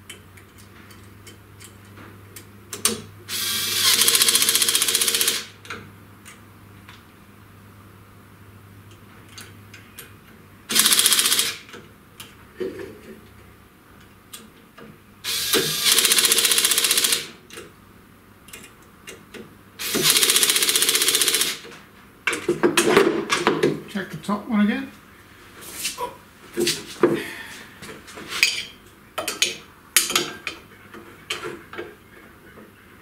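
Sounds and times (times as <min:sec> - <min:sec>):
impact driver rattling: 0:19.8 - 0:21.6.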